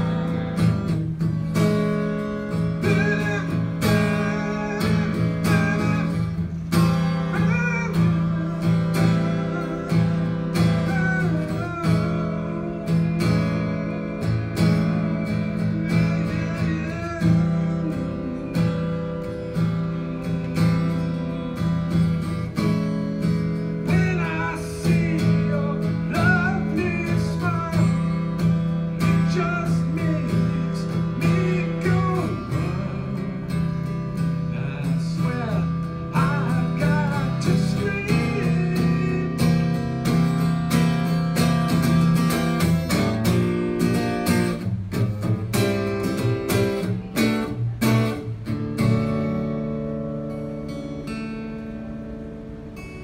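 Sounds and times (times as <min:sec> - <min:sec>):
acoustic guitar strumming: 0:00.0 - 0:53.0
man scat singing: 0:02.6 - 0:13.6.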